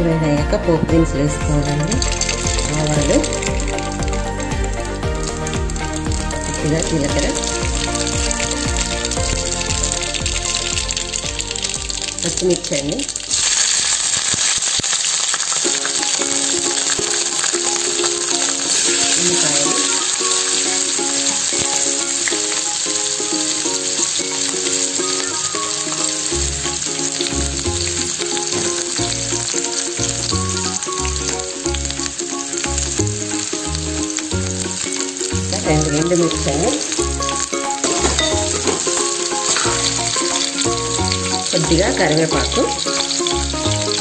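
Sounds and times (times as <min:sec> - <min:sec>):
bass line: 0:00.0 - 0:13.3, 0:26.3 - 0:38.8, 0:39.6 - 0:44.0
background music with melody: 0:00.0 - 0:13.6, 0:15.3 - 0:44.0
vegetables sizzling in hot oil: 0:01.1 - 0:44.0.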